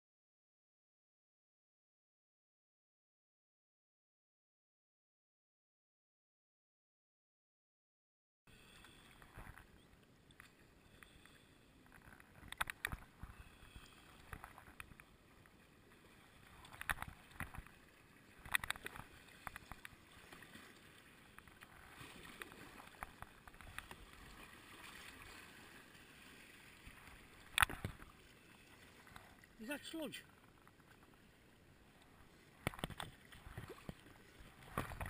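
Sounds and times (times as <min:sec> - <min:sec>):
paddle splashing in water: 0:12.0 - 0:35.0.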